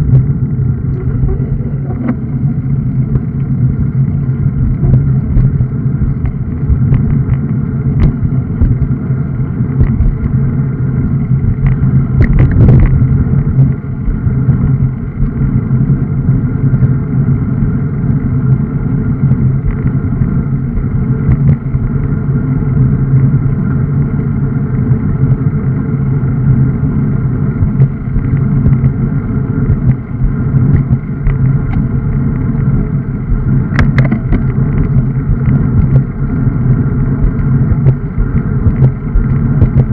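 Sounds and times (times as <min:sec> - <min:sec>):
tyre and road vibration: 0:00.0 - 0:39.9
wind buffeting microphone: 0:00.0 - 0:39.9.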